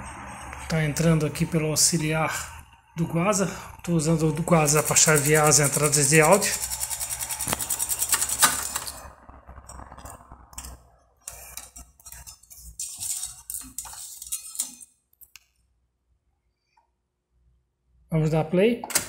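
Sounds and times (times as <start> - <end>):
fast even ticking: 4.5 - 8.4.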